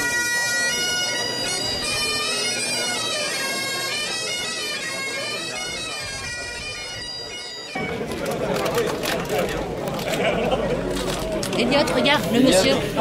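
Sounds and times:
bagpipes playing a tune: 0:00.0 - 0:09.1.

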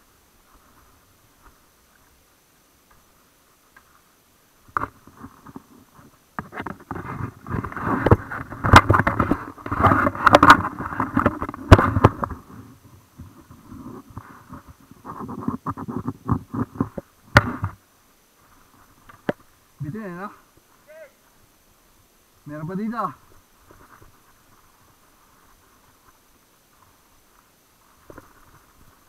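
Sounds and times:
mountain bike rattling over bumps: 0:04.7 - 0:12.6.

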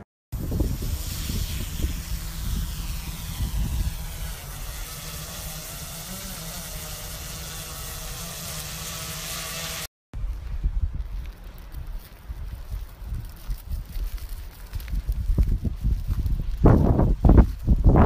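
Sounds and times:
wind rumble on microphone: 0:00.4 - 0:06.8, 0:10.2 - 0:18.0
drone propellers whining: 0:00.4 - 0:09.9.

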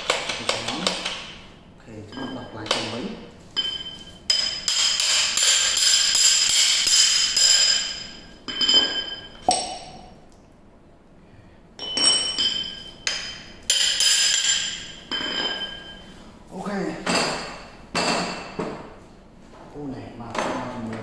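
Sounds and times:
metal chisel bits clinking: 0:11.8 - 0:16.0.

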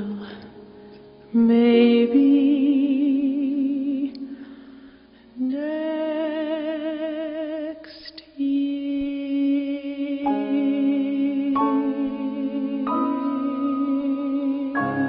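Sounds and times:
soprano singing with vibrato: 0:01.3 - 0:04.2, 0:05.4 - 0:15.0
singer breathing: 0:04.3 - 0:05.4
soft piano: 0:09.2 - 0:15.0.

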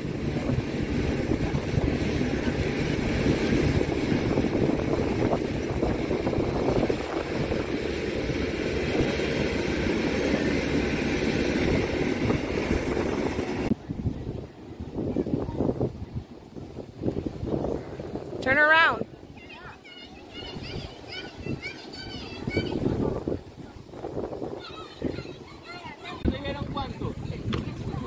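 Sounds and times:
aircraft engine rumble: 0:00.0 - 0:18.4
wind buffeting microphone: 0:00.0 - 0:28.0.

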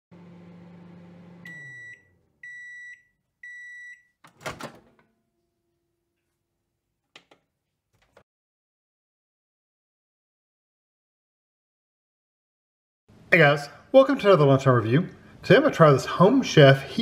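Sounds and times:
microwave oven humming: 0:00.1 - 0:03.7.

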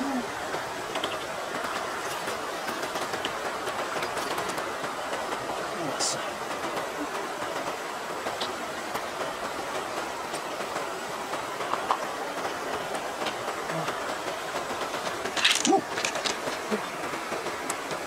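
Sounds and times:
running water: 0:00.0 - 0:18.0
wet clicks of mussel shell: 0:15.4 - 0:16.6.

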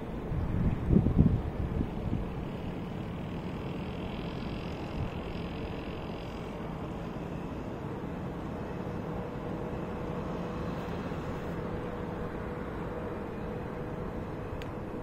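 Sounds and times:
wind rumbling on microphone: 0:00.0 - 0:07.0
distant traffic hum: 0:00.0 - 0:15.0
faint steady tone: 0:00.0 - 0:15.0.

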